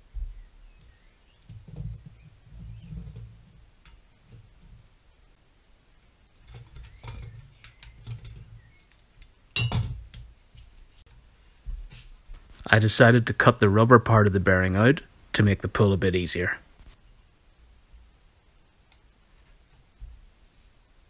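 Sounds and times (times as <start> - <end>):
metal tool clinking and knocking: 9.6 - 10.1.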